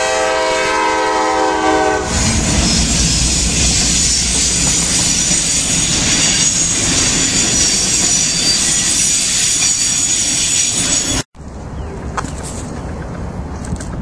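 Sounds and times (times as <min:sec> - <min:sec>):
train wheels rumbling on rail: 0:00.0 - 0:11.2
high wheel squeal: 0:02.0 - 0:11.2.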